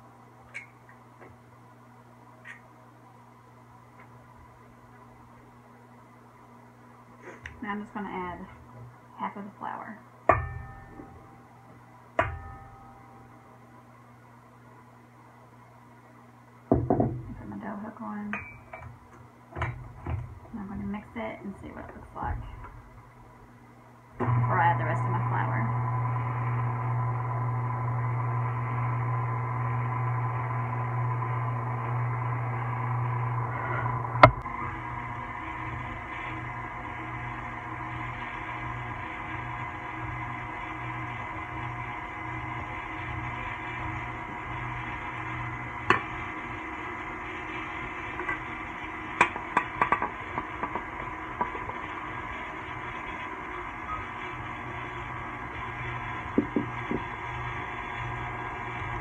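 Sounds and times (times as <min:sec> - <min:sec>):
high motor whine: 0:24.2 - 0:59.0
stand mixer motor hum: 0:24.2 - 0:59.0.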